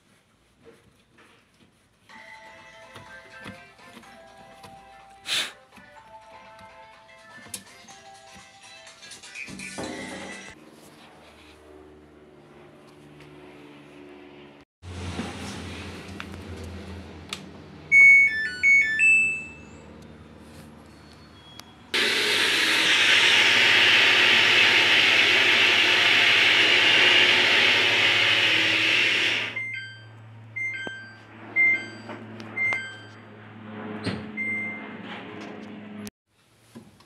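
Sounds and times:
control panel beeping: 17.9 - 19.8, 29.5 - 33.1.

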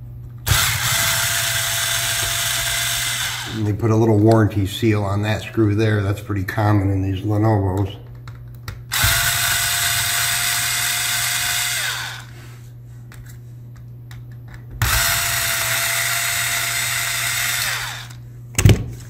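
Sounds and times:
electric screwdriver motor whine: 0.5 - 3.6, 8.9 - 12.3, 14.8 - 18.2.

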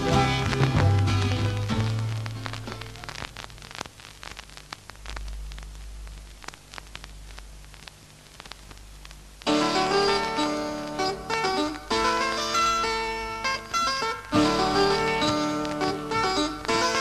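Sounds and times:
song ending: 0.0 - 2.8
plucked strings: 0.0 - 3.0, 9.5 - 17.0
steady low hum: 0.0 - 11.6
vinyl clicks and pops: 0.0 - 17.0
vinyl surface hiss: 0.0 - 17.0.

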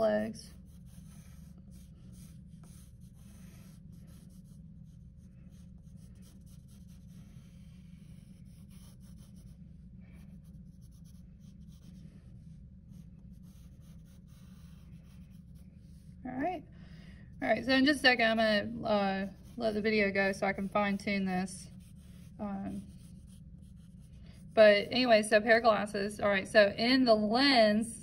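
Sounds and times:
drawing strokes on paper: 0.0 - 16.6, 17.3 - 25.7
steady low hum: 0.0 - 28.0.

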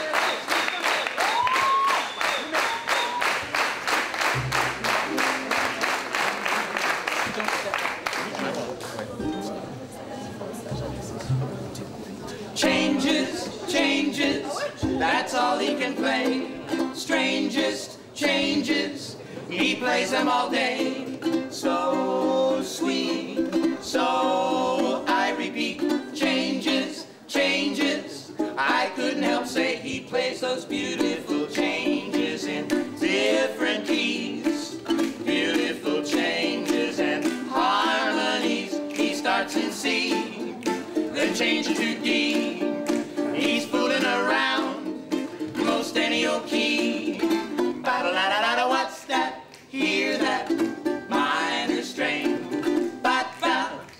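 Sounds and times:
strummed ukulele: 4.2 - 6.4, 9.1 - 9.8, 10.7 - 53.9
snare drum played with sticks: 4.3 - 5.5
plucked double bass: 4.3 - 5.8, 10.5 - 17.7, 19.5 - 48.8, 49.8 - 53.7
people singing: 12.3 - 53.9.

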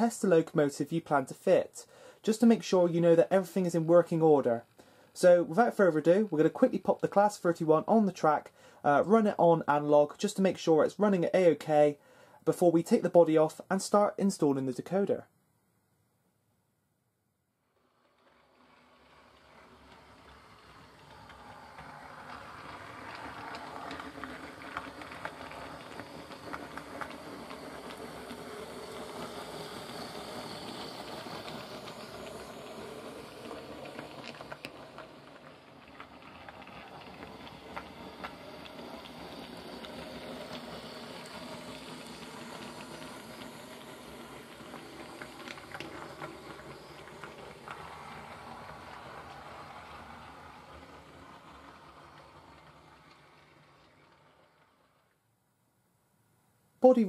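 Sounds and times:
model train motor whirr: 17.6 - 55.2
wheels clicking over rail joints: 18.0 - 55.2.

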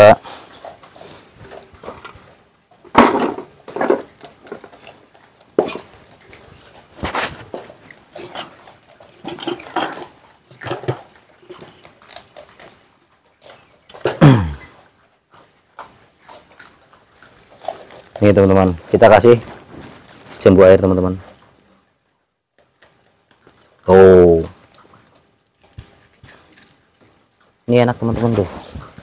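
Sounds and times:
wire cage and tray clinking: 0.0 - 20.6.

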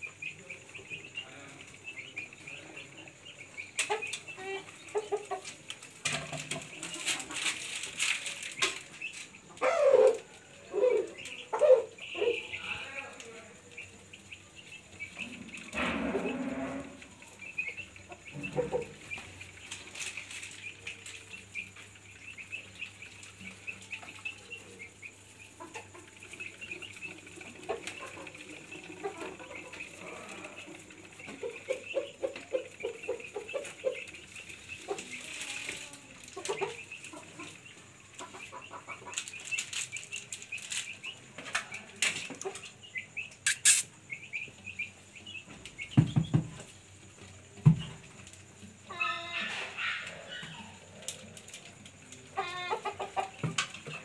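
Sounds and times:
small birds chirping: 0.0 - 54.0
rustles and knocks: 5.3 - 9.4, 45.4 - 48.8.

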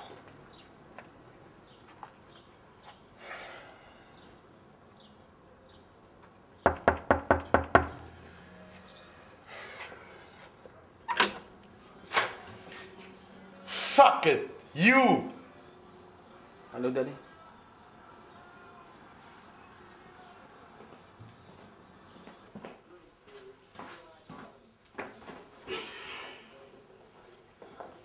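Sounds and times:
knocking on wooden door: 6.7 - 8.1.

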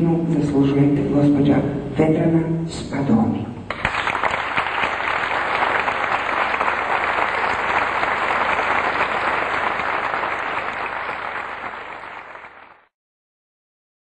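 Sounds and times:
audience applauding: 3.7 - 12.9.

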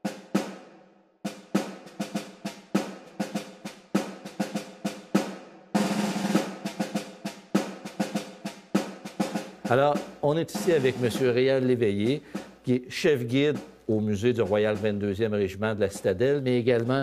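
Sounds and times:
snare drum strokes: 0.0 - 0.7, 1.3 - 17.0.

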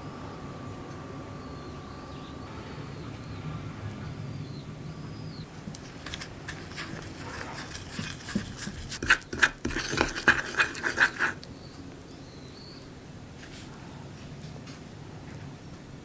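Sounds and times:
spoon stirring in ceramic bowl: 5.7 - 11.5.

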